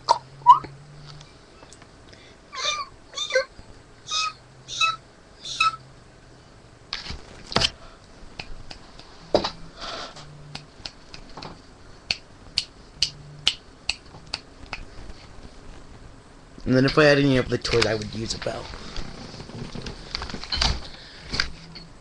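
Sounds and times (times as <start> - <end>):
finger snaps: 8.3 - 9.1, 10.5 - 11.3, 12.1 - 14.9
clicking mouth sounds: 10.5 - 11.3.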